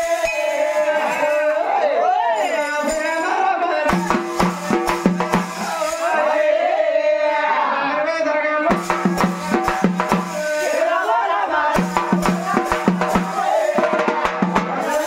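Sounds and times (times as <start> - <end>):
person singing: 0.0 - 15.0
drum beating: 3.9 - 6.1, 8.7 - 15.0.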